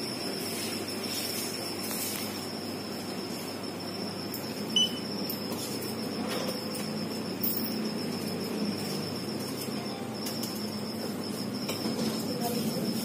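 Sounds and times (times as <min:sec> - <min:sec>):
steady background hum and hiss: 0:00.0 - 0:13.0
short electronic beep: 0:04.7 - 0:05.1.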